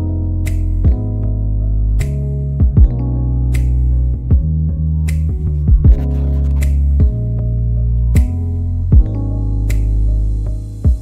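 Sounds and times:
background music with low notes: 0:00.0 - 0:11.0
sharp beats: 0:05.7 - 0:07.2.

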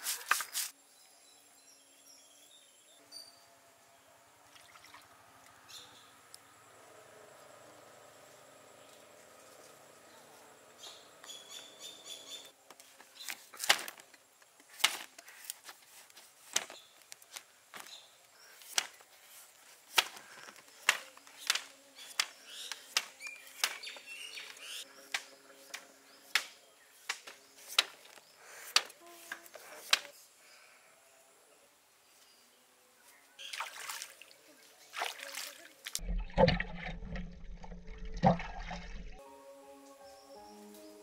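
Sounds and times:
birds chirping: 0:08.7 - 0:13.4, 0:20.2 - 0:28.8.

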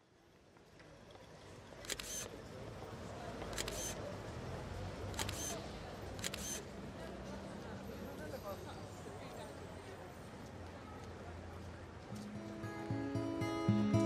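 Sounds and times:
camera shutter clicks: 0:01.8 - 0:02.3, 0:03.5 - 0:04.0, 0:05.1 - 0:05.6, 0:06.2 - 0:06.6.

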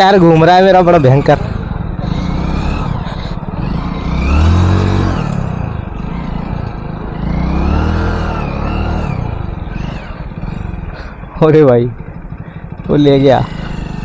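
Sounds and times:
motorcycle engine revving: 0:00.0 - 0:14.0.

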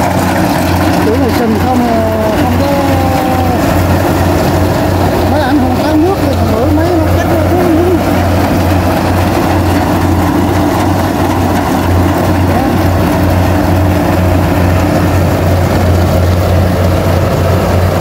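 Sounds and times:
combine harvester engine hum: 0:00.0 - 0:18.0.

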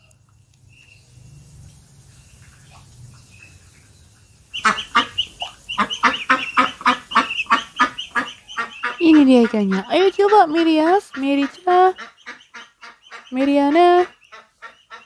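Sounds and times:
ducks quacking: 0:04.5 - 0:15.0.

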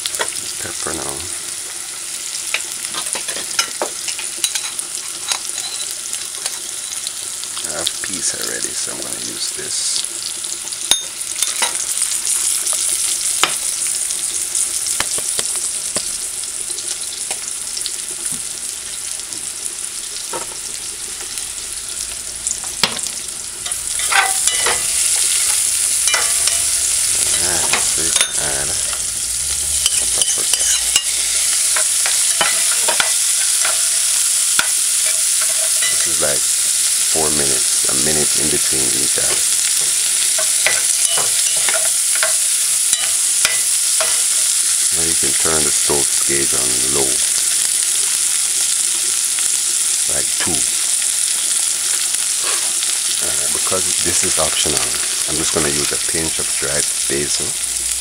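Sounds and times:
vegetables sizzling in a pot: 0:00.0 - 0:58.0
metal spoon scraping a pot: 0:23.6 - 0:34.0, 0:34.6 - 0:36.2.

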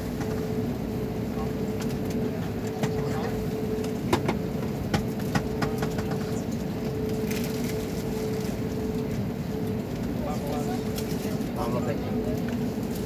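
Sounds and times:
jet engines droning: 0:00.0 - 0:13.0.

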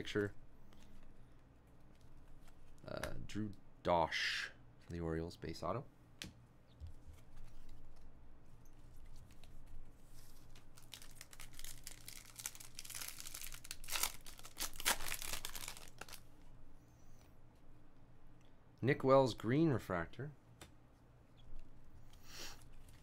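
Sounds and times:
foil wrapper crinkling: 0:10.2 - 0:16.3.

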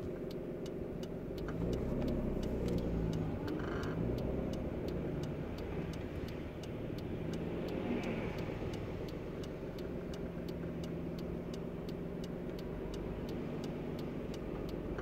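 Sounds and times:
turn-signal flasher clicking: 0:00.0 - 0:07.5
car engine low hum: 0:00.0 - 0:15.0.

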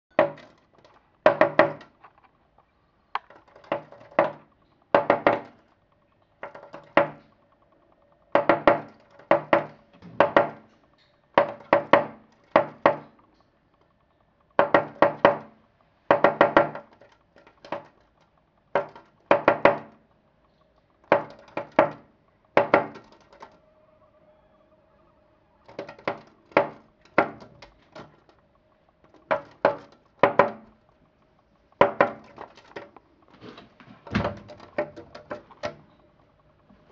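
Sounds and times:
bird tapping against glass: 0:00.1 - 0:02.0, 0:03.2 - 0:05.6, 0:06.4 - 0:07.4, 0:08.3 - 0:10.7, 0:11.4 - 0:13.2, 0:14.6 - 0:23.6, 0:25.6 - 0:28.4, 0:29.0 - 0:30.8, 0:31.7 - 0:33.0, 0:34.1 - 0:36.0.

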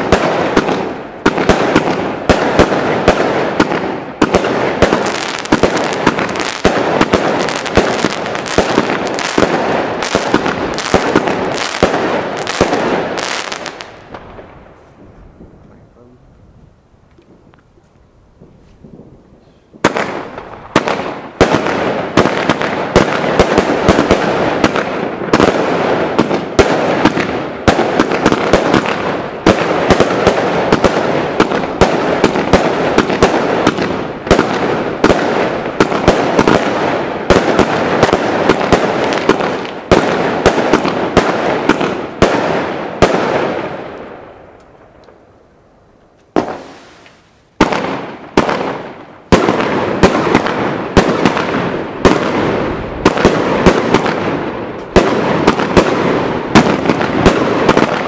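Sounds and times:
firework cake shots and crackling: 0:00.0 - 0:14.5, 0:19.7 - 0:45.2, 0:46.2 - 0:58.0
bursts of bangs: 0:47.6 - 0:58.0.

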